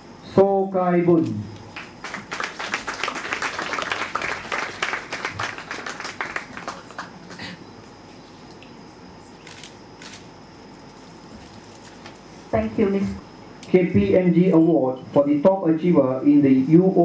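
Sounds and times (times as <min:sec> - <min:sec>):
audience applauding: 0:01.7 - 0:07.6.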